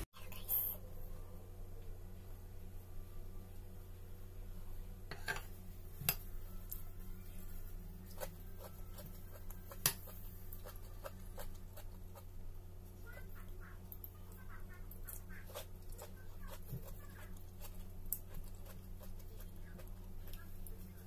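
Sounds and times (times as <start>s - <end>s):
steady low hum: 0.0s - 21.0s
chewing: 8.0s - 12.3s, 13.4s - 21.0s.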